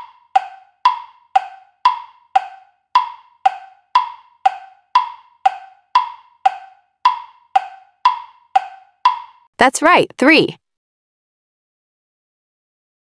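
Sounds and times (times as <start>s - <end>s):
wood-block timer ticking: 0.0s - 9.5s.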